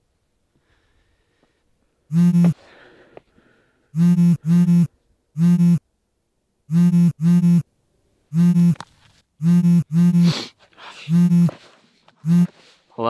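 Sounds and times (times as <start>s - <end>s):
mobile phone buzzing: 2.1s - 2.6s, 4.0s - 5.8s, 6.7s - 7.6s, 8.3s - 8.8s, 9.4s - 10.4s, 11.1s - 11.6s, 12.2s - 12.5s.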